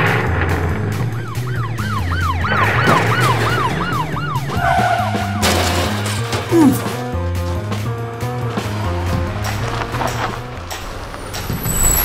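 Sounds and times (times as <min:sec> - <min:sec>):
background music: 0:00.0 - 0:12.0
police siren wailing: 0:00.7 - 0:05.8.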